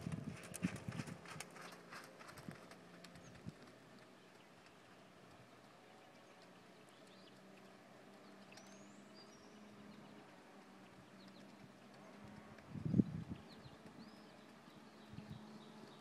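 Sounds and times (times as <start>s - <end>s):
horse hoofbeats cantering: 0.0s - 4.3s.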